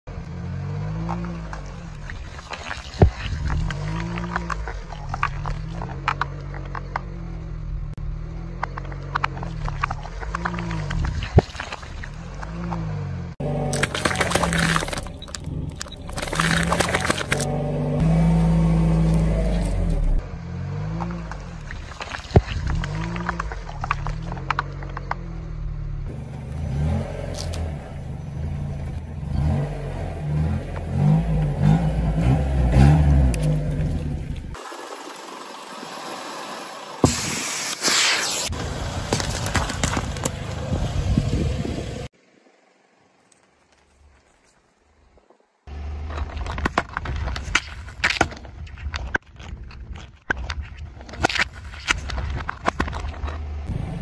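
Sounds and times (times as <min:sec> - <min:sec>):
car engine low hum: 0:00.0 - 0:47.8, 0:51.3 - 0:54.0
tyre crushing plastic cups: 0:13.7 - 0:17.5, 0:39.0 - 0:40.6
tyre squashing jelly: 0:13.7 - 0:17.5.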